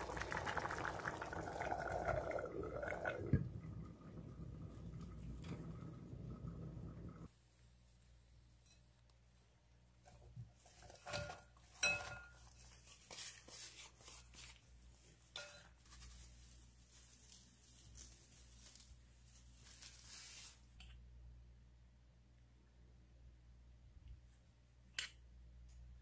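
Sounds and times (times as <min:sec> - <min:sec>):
bowls clinking together: 0:11.0 - 0:12.5
onion slices rustling: 0:12.4 - 0:20.8.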